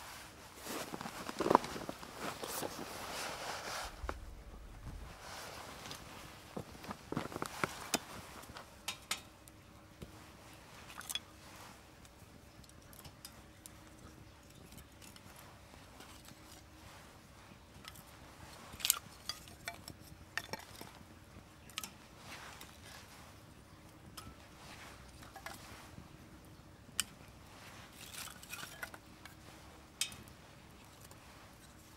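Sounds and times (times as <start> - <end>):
faint steady hum: 0.0 - 31.9
small hard objects clinking: 27.9 - 29.1.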